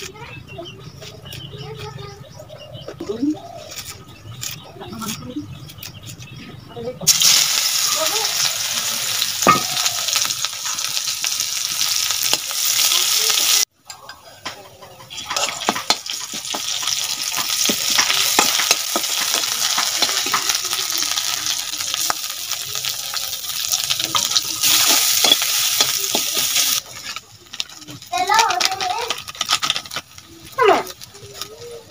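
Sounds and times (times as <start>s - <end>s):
food sizzling in a wok: 7.1s - 13.7s, 15.1s - 31.9s
metal spatula scraping a pan: 14.9s - 20.5s, 24.0s - 28.0s.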